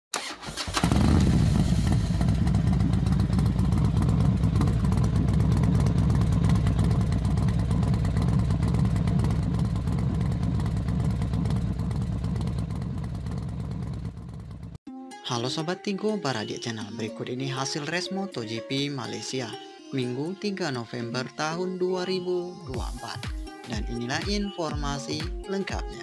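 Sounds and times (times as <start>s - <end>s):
racing motorcycle engines droning: 0.8s - 14.7s.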